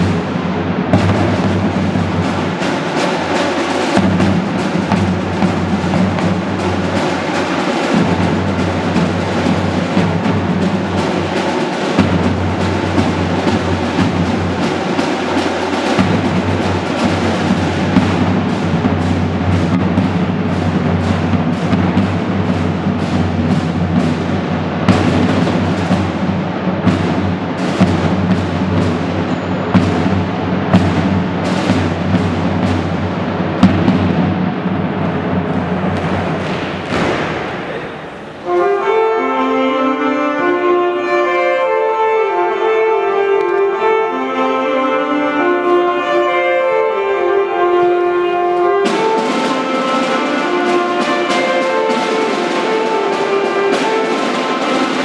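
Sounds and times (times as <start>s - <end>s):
drums beating: 0.0s - 39.0s, 47.6s - 55.0s
marching band playing: 0.0s - 55.0s
bass drum: 15.9s - 38.4s.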